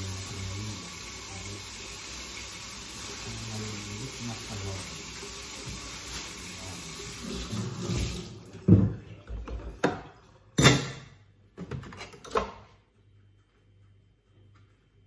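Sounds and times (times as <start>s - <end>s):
kitchen tap running: 0.0s - 11.0s
dishes and utensils clattering: 8.7s - 12.7s.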